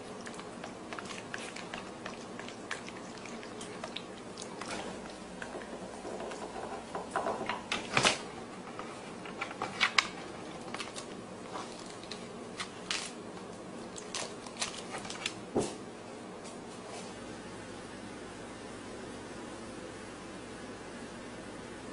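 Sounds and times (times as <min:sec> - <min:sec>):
dog crunching lettuce: 0:00.0 - 0:06.6, 0:09.7 - 0:13.2, 0:13.8 - 0:15.4.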